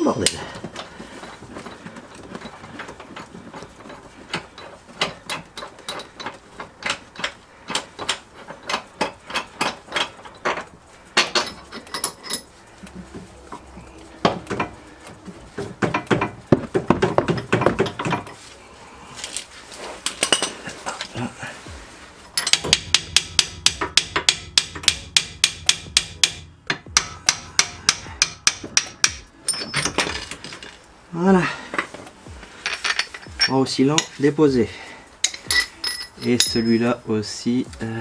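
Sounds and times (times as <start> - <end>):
metallic knocks: 2.3 - 18.4, 22.4 - 30.7
hand tool clicking: 22.4 - 30.6.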